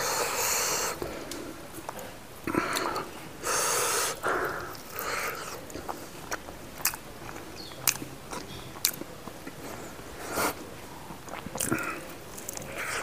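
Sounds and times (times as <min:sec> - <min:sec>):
person chewing and lip-smacking: 0:04.5 - 0:13.0
wet mouth clicks: 0:11.3 - 0:13.0.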